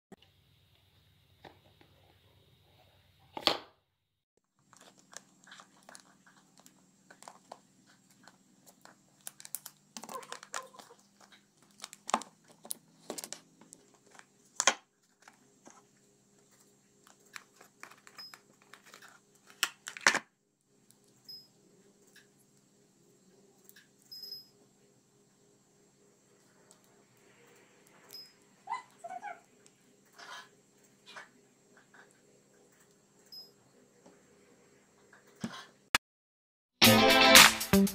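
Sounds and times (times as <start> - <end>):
packaging crinkling and tearing: 4.6 - 15.8, 17.0 - 20.2.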